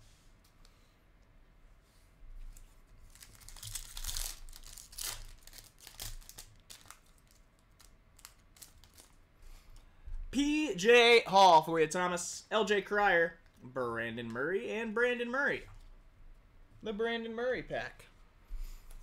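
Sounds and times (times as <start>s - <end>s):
foil wrapper tearing and crinkling: 3.1s - 9.2s.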